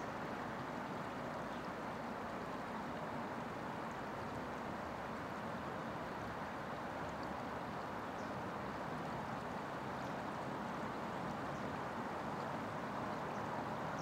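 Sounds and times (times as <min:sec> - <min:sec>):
river water rushing over stones: 0:00.0 - 0:14.0
faint high ticks: 0:07.0 - 0:08.3.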